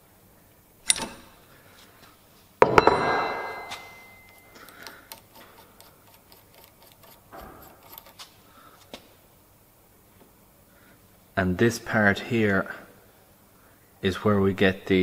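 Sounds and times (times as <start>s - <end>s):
metallic clank ringing: 2.6s - 5.2s
torque wrench click: 4.1s - 8.3s.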